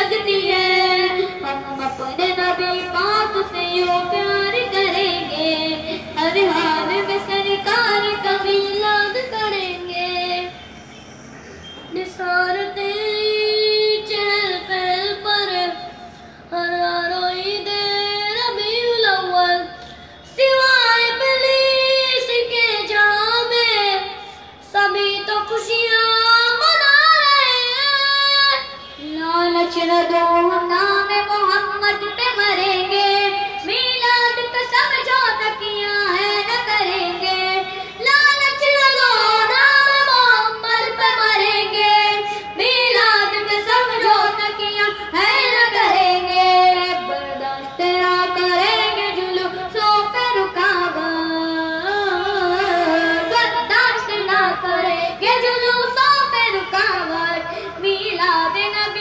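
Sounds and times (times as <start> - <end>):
boys singing devotional song: 0.0 - 10.6, 16.6 - 59.0.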